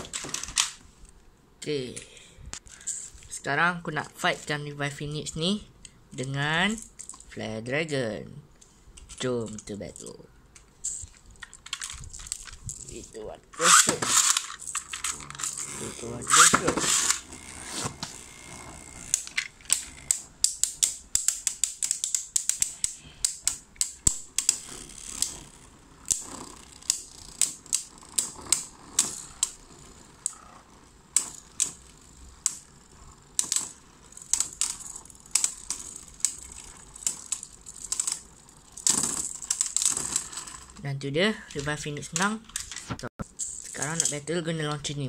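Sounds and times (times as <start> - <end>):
spinning tops clacking together: 9.1 - 40.8, 41.5 - 44.3.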